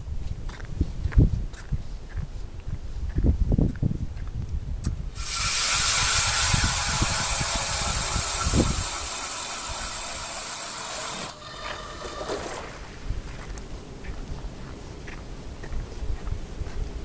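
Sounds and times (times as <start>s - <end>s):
ice auger drilling through ice: 5.2s - 12.9s.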